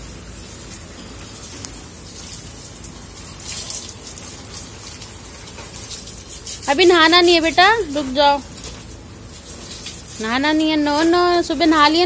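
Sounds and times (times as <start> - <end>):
hose water spattering on plants: 0.0 - 12.0.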